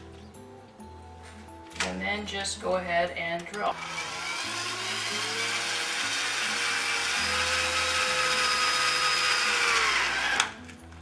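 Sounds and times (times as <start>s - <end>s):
electric drill boring plastic pipe: 3.8s - 10.6s.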